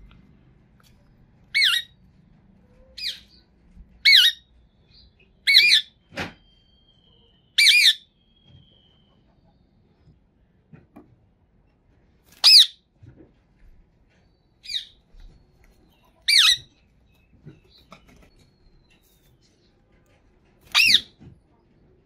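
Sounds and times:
parakeet shrill calls: 1.5 - 2.0, 3.0 - 3.4, 4.0 - 4.5, 5.4 - 6.0, 7.6 - 8.1, 12.4 - 12.8, 16.2 - 16.7, 20.7 - 21.2.

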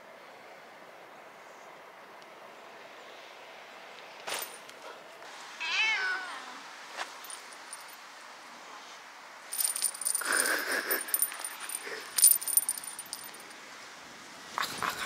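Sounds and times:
small hard objects rattling: 9.5 - 13.5.

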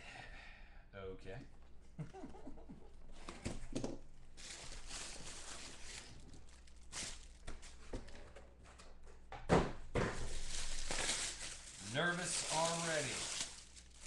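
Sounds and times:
plastic wrapping crinkling: 4.4 - 7.8, 10.2 - 14.0.

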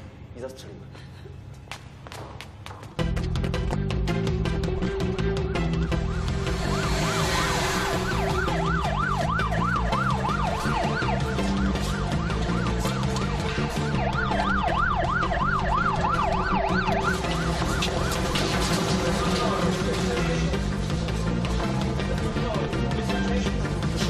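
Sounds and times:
background music: 2.4 - 24.0
siren yelping: 4.8 - 20.2.

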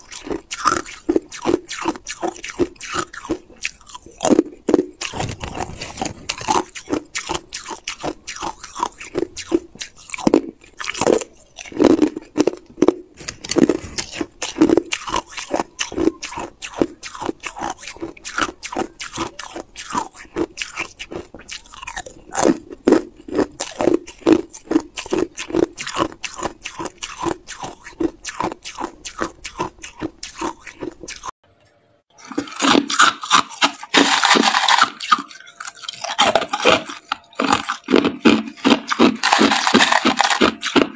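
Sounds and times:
ice being chewed: 0.0 - 31.3, 32.2 - 40.9
crushed ice scraping in plastic cup: 5.0 - 6.7, 32.2 - 40.9.

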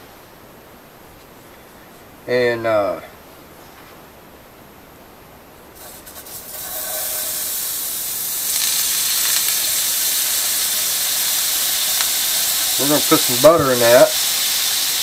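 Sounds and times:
butter sizzling in a skillet: 5.8 - 15.0.

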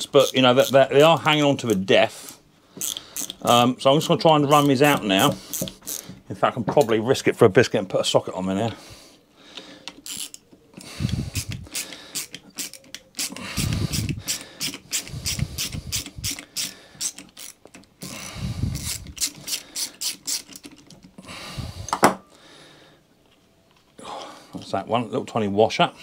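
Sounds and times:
hand ratchet clicking: 0.0 - 1.9, 2.8 - 6.1, 9.8 - 21.2.

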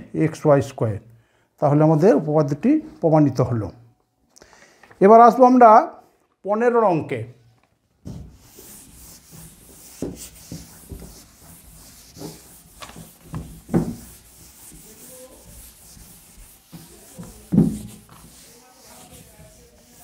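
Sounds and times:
rubbing and scraping: 8.1 - 20.0.

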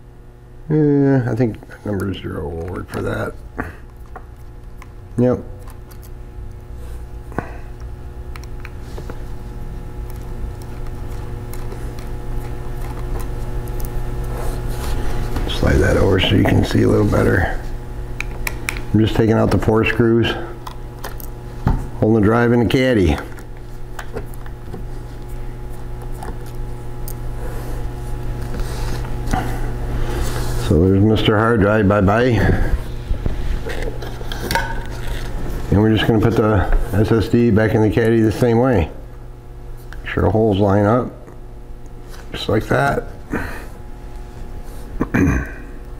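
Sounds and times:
steady low hum: 0.0 - 45.9.

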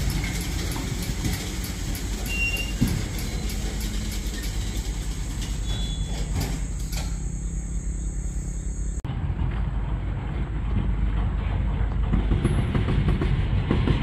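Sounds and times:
clicks over rail joints: 0.0 - 7.4
train wheels rumbling on rails: 0.0 - 14.0.

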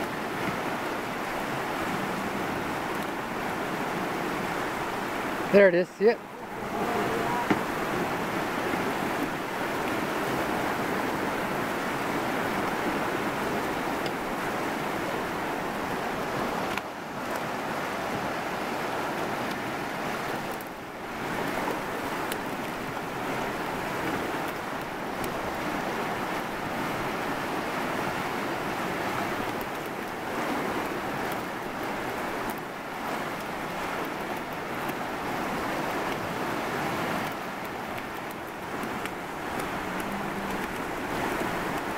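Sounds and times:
river rushing through rapids: 0.0 - 41.9.

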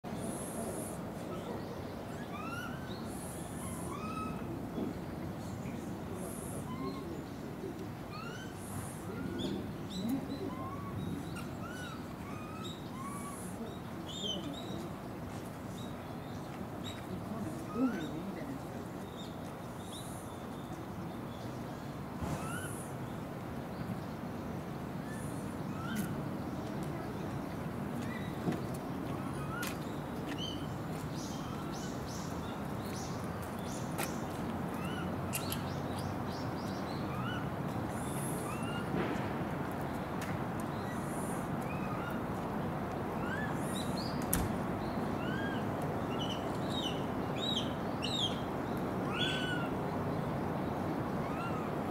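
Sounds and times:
background hiss: 0.1 - 2.2, 2.8 - 28.1, 28.7 - 51.9
monkey coo calls: 0.3 - 4.6, 6.2 - 14.4.

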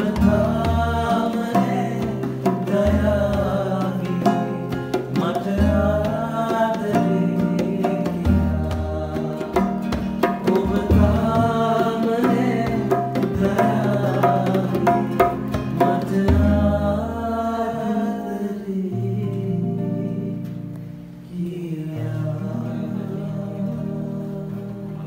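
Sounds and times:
hand drum bass strokes and slaps: 0.0 - 16.8
classical guitar: 0.0 - 25.0.

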